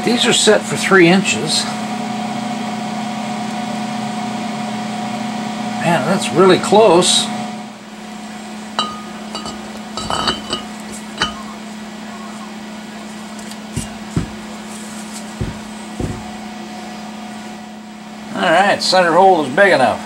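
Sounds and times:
metal brake rotor clinking: 8.8s - 11.6s.

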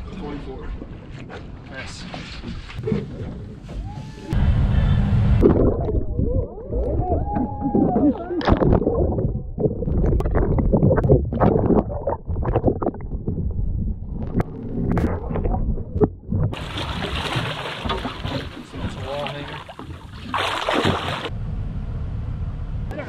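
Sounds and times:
underwater water rushing and gurgling: 7.6s - 21.3s
water splashing: 7.6s - 21.3s.

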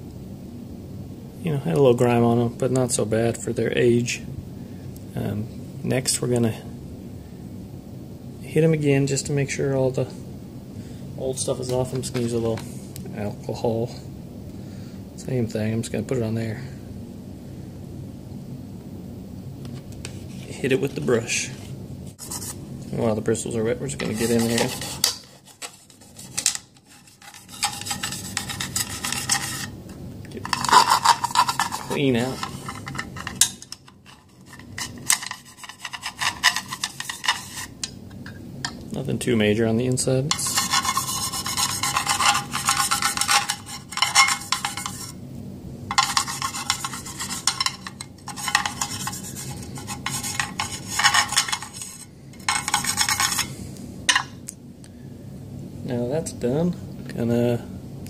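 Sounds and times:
brush scrubbing metal: 22.2s - 22.6s, 23.9s - 29.8s, 30.4s - 37.9s, 40.3s - 45.2s, 45.9s - 53.6s.

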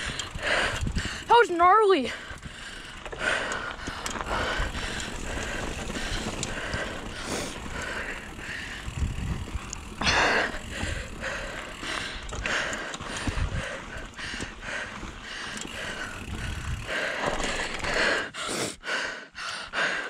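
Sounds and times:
bike chain and frame rattling: 0.0s - 18.2s
bike tyres over dirt and rock: 0.0s - 18.2s.

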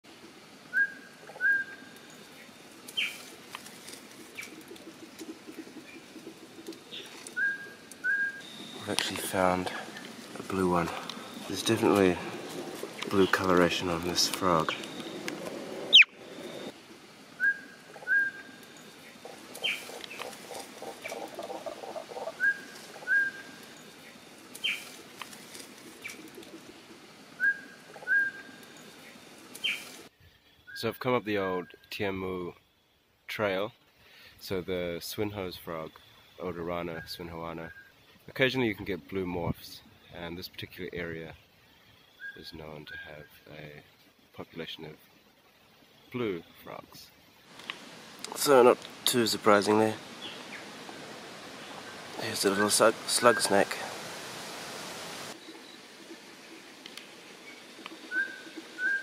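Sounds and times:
steady background hiss: 0.0s - 59.0s
whistled animal calls: 0.7s - 1.9s, 7.3s - 8.9s, 10.9s - 16.7s, 17.4s - 18.5s, 21.0s - 23.6s, 27.4s - 28.5s, 58.0s - 59.0s.

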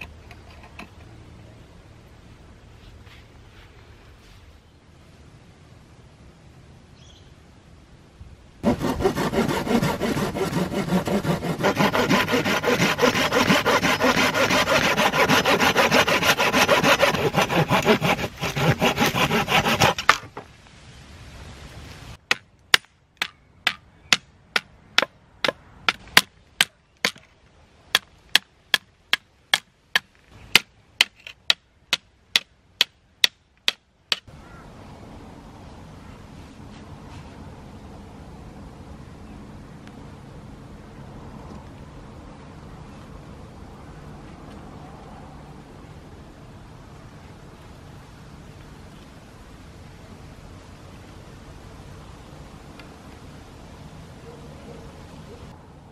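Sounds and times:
hand scraping: 8.6s - 20.2s.

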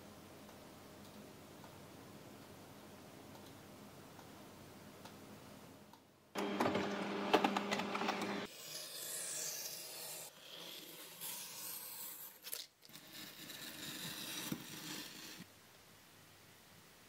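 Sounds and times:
utility knife slicing paper: 8.4s - 15.4s.

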